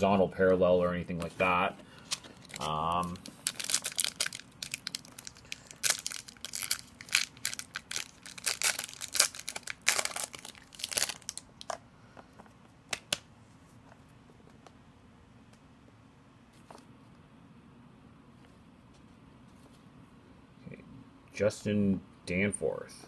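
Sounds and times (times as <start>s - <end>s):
foil wrapper crinkling and tearing: 2.1s - 11.8s.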